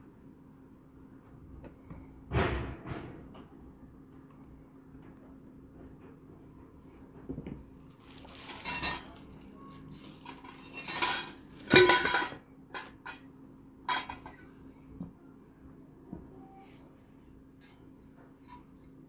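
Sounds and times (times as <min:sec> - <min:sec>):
rustling and scraping: 0:05.8 - 0:13.2.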